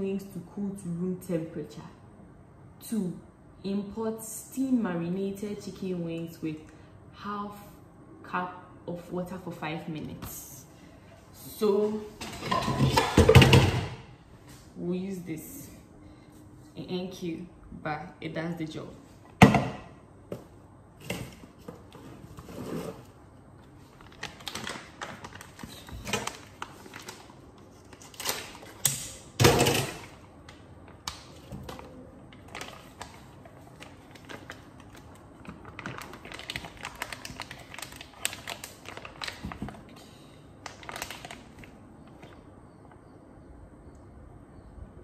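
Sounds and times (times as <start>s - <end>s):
plastic bag rustling: 21.5s - 28.8s, 31.4s - 42.4s.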